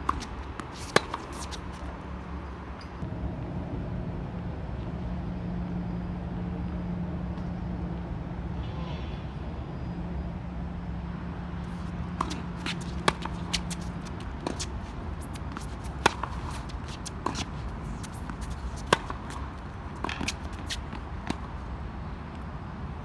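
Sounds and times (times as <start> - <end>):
racket hitting tennis ball: 0.0 - 1.9, 11.7 - 21.7
tennis ball bouncing: 0.0 - 2.0, 11.7 - 21.7
steady background hum: 0.0 - 23.0.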